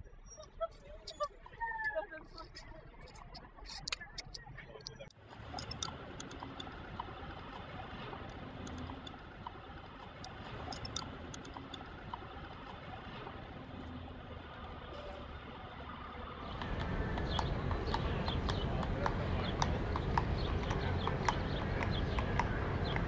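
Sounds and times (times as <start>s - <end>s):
city street traffic hum: 0.3s - 23.0s
faint small clicks: 8.3s - 12.8s.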